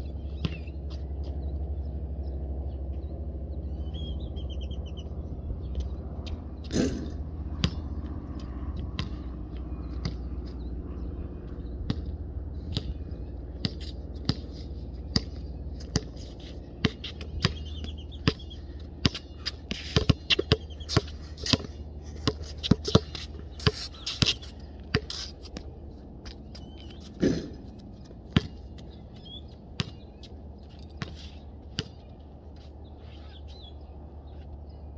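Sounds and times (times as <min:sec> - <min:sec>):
basketball bouncing on asphalt: 0:00.2 - 0:01.6, 0:05.7 - 0:34.7
ball hitting hoop with ring: 0:06.7 - 0:07.8, 0:27.2 - 0:27.7.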